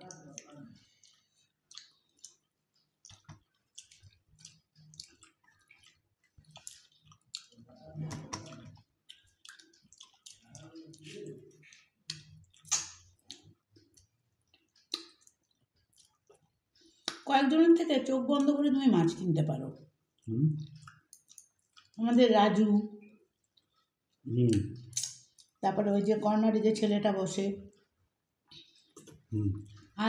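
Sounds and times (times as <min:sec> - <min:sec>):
wet chewing and lip-smacking: 0:00.0 - 0:17.3, 0:19.7 - 0:22.0, 0:23.0 - 0:25.6
low humming voice: 0:29.3 - 0:29.6.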